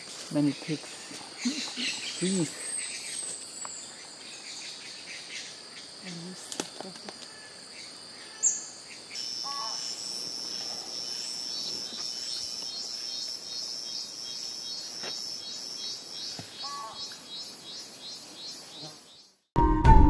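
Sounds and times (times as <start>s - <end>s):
insects droning high-pitched: 0.0s - 19.4s.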